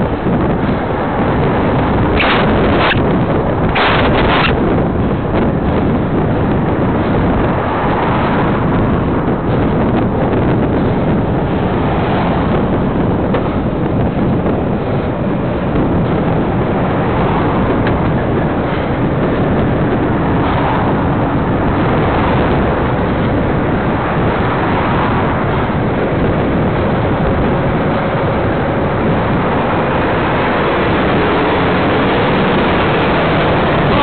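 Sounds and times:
road noise: 0.0s - 34.0s
wind rushing over microphone: 0.0s - 34.0s
truck diesel engine running: 25.2s - 34.0s.

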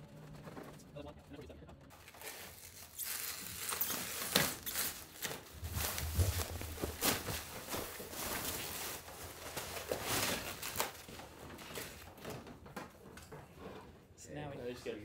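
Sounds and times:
plastic sheeting rustling: 1.9s - 12.7s.

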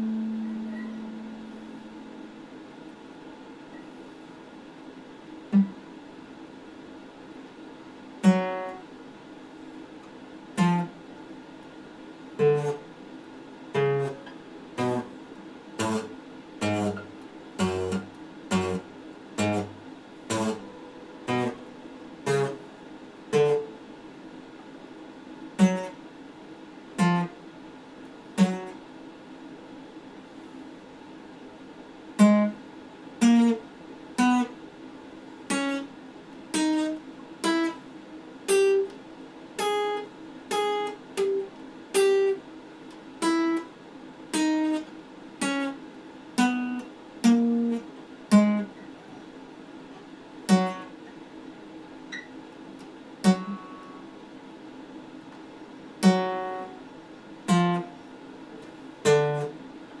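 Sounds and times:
acoustic guitar plucked notes: 0.0s - 2.6s, 5.5s - 5.9s, 8.2s - 8.8s, 10.6s - 11.0s, 12.4s - 12.8s, 13.8s - 15.1s, 15.8s - 22.6s, 23.3s - 23.7s, 25.6s - 26.0s, 27.0s - 27.3s, 28.4s - 28.8s, 32.2s - 32.6s, 33.2s - 33.6s, 50.5s - 50.9s, 53.2s - 54.0s, 56.0s - 56.8s, 57.5s - 57.9s, 59.0s - 59.6s.

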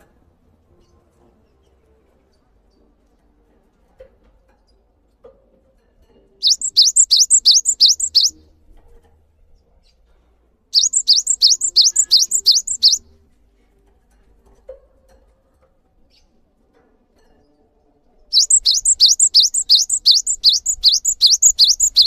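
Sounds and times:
bird singing high notes: 6.4s - 8.4s, 10.8s - 13.0s, 18.4s - 22.0s.

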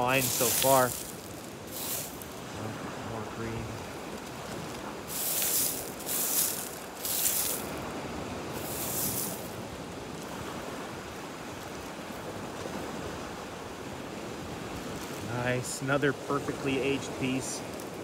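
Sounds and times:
short rustles: 0.0s - 2.4s, 4.7s - 7.8s, 8.6s - 9.6s
surf on pebble beach: 0.0s - 18.0s
wind: 0.0s - 18.0s.

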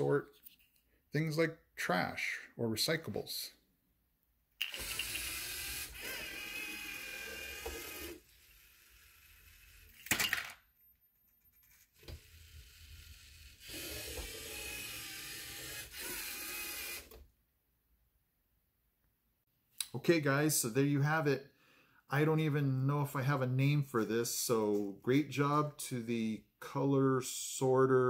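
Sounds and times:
robot motors whirring: 4.7s - 10.0s, 11.9s - 17.1s.

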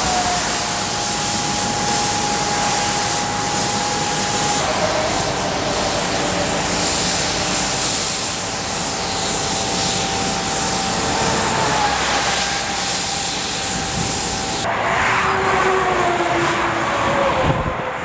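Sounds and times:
suction truck vacuum whine: 0.0s - 18.0s
motorway traffic passing: 11.1s - 18.0s.

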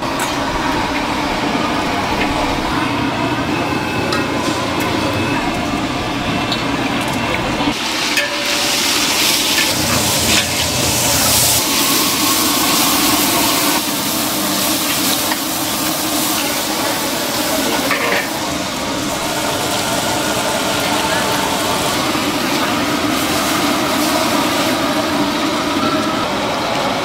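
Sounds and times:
food sizzling in a wok: 7.7s - 25.8s.

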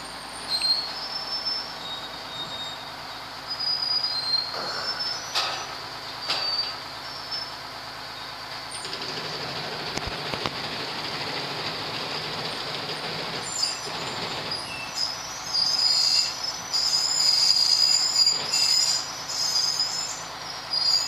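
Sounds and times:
short high squeaks: 0.0s - 7.6s, 13.4s - 21.0s
boat hoist machinery noise: 0.0s - 15.3s.

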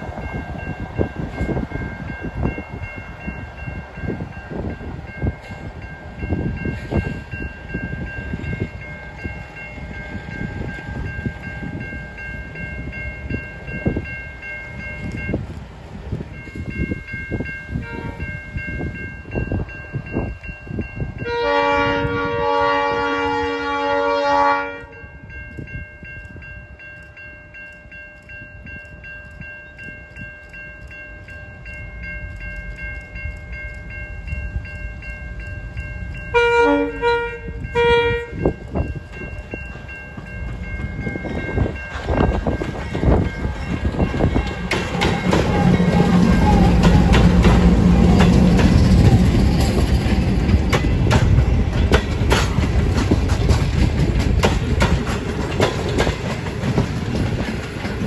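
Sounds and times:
low gusty rumbling: 0.0s - 24.1s, 33.4s - 58.0s
locomotive horn: 17.8s - 18.2s, 21.2s - 25.0s, 36.3s - 38.4s, 44.8s - 48.6s.

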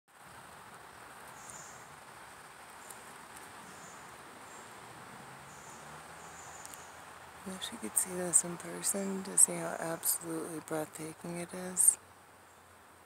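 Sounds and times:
steady hiss: 0.1s - 13.0s
insects chirping: 0.9s - 1.9s, 2.8s - 4.8s, 5.4s - 10.2s.

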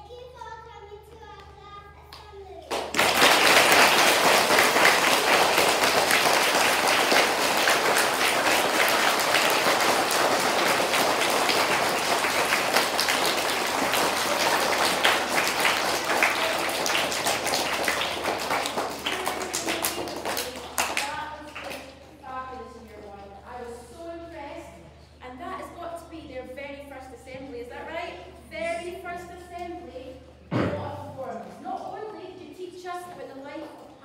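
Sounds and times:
audience clapping: 2.7s - 21.9s.

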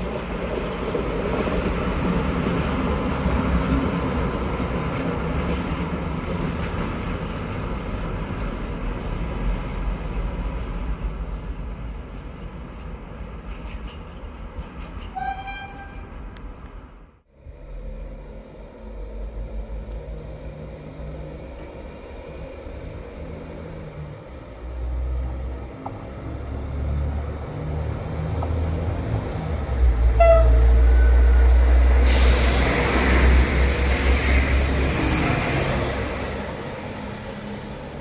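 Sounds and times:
diesel railcar rumble: 0.0s - 38.0s
wheel and rail noise: 0.0s - 38.0s
train horn toot: 15.1s - 16.2s, 30.1s - 31.5s.

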